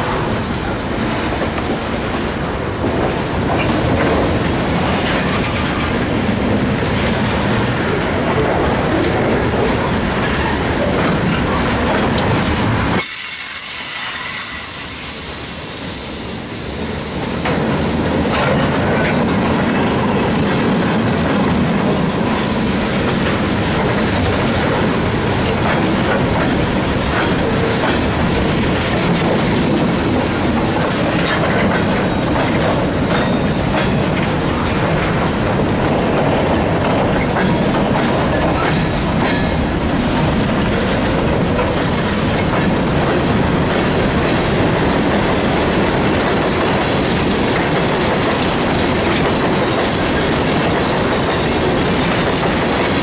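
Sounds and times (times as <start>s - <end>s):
train wheels clacking over rail joints: 0.0s - 53.0s
high wheel squeal: 13.0s - 17.3s.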